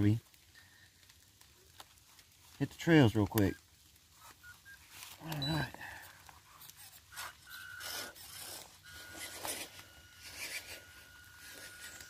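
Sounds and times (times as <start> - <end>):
tyres scraping dirt and leaves: 0.0 - 12.0
electric motor whine: 6.5 - 12.0.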